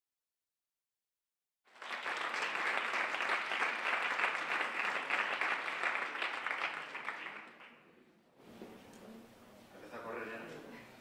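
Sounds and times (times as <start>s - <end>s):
audience applauding: 1.7s - 7.8s.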